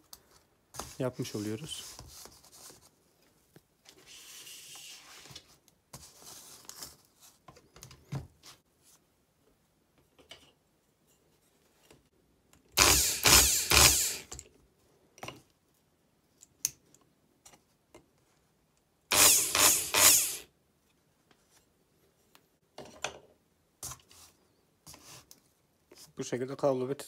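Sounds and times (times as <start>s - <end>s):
electric drill motor running: 12.8s - 14.3s, 19.1s - 20.5s.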